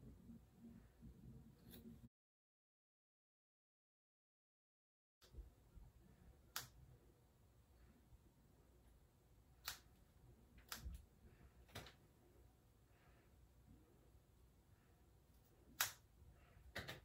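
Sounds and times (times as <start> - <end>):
scissors snipping wet hair: 9.6 - 9.9, 15.8 - 16.0.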